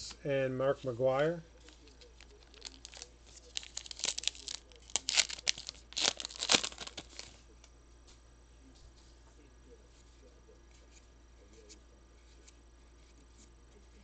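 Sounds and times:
wrapper tearing and crinkling: 1.7s - 7.4s.

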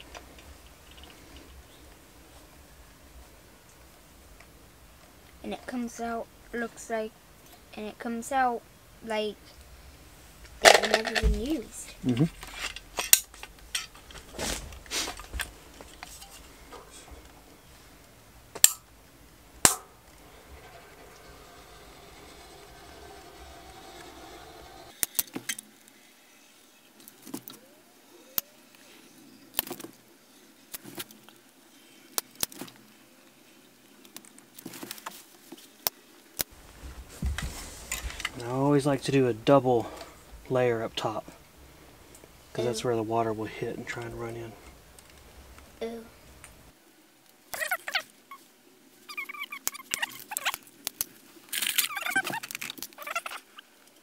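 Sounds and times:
low steady hum: 0.0s - 25.0s
squeaky sealant squelches: 49.0s - 50.7s, 51.5s - 53.8s.

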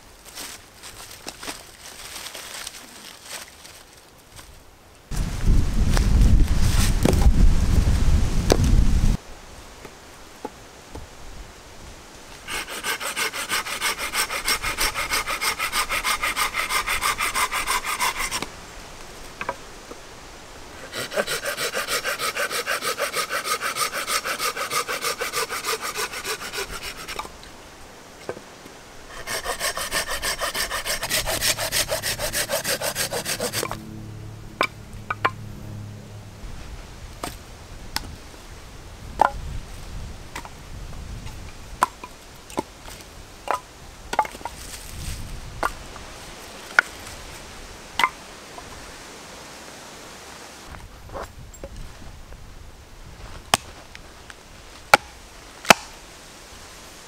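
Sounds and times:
hand saw cutting wood: 12.5s - 18.5s, 20.8s - 27.3s, 29.1s - 33.8s.

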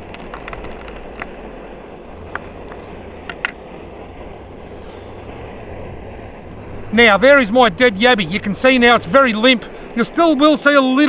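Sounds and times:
sharp little clicks: 0.0s - 1.4s
gas stove burner hissing: 1.2s - 11.0s.

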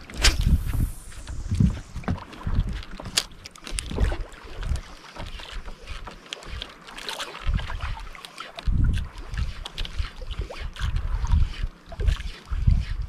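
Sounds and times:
wind buffeting microphone: 0.0s - 3.2s, 8.6s - 13.0s
water lapping against boat: 0.0s - 13.0s.

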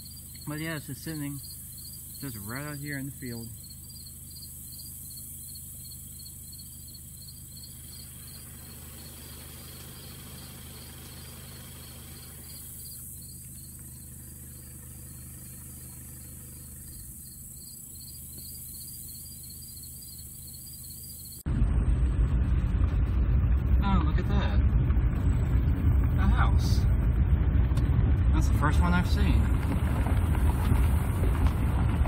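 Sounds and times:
insects chirping: 0.0s - 21.5s
low steady hum: 0.0s - 32.0s.

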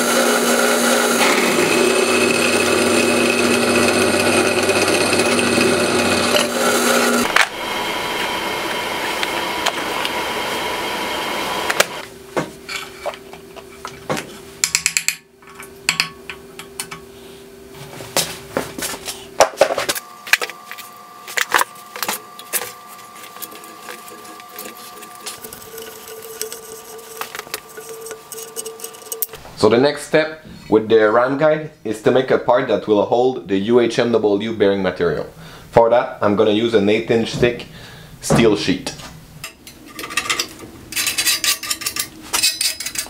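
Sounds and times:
steady whir: 0.0s - 12.1s, 19.9s - 29.4s.

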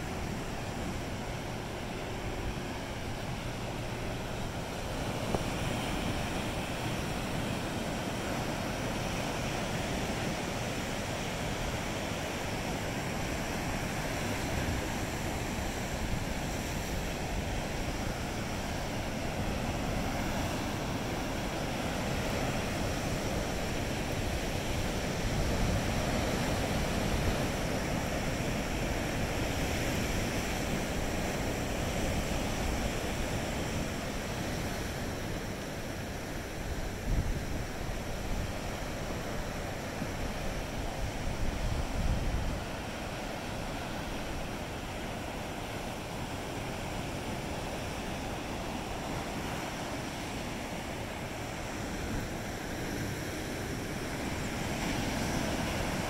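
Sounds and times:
ocean surf breaking on rocks: 0.0s - 56.0s.

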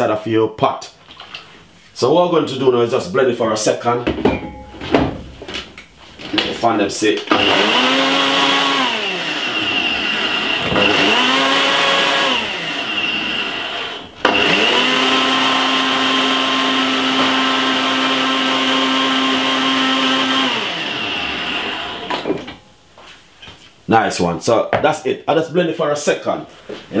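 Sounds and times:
blender click: 7.2s - 13.1s, 13.9s - 22.3s
blender motor pulsing: 7.3s - 22.3s.

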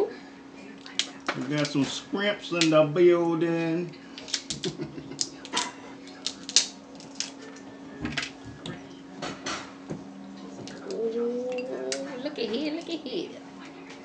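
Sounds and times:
steady low hum: 0.0s - 14.0s
seafood shells cracking: 0.8s - 1.8s, 4.1s - 8.4s.

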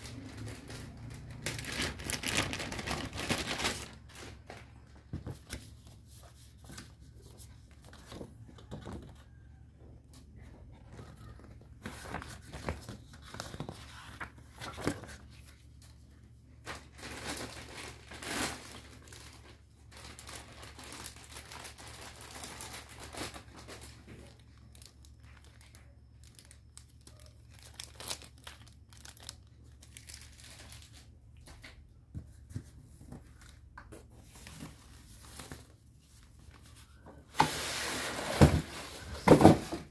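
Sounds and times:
hands rustling foam and paper: 0.2s - 8.6s.

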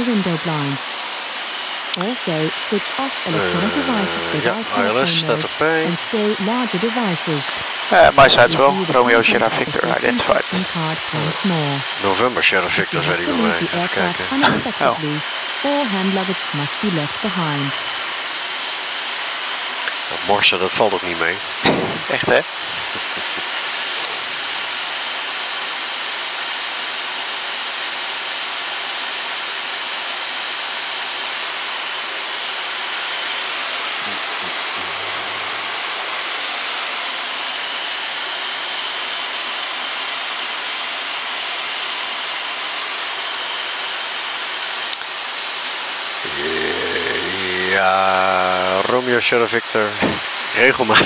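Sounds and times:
airflow rushing over cockpit: 2.0s - 18.2s, 19.9s - 24.6s, 32.8s - 38.2s, 46.2s - 51.0s
air-conditioning hiss: 3.3s - 51.0s.

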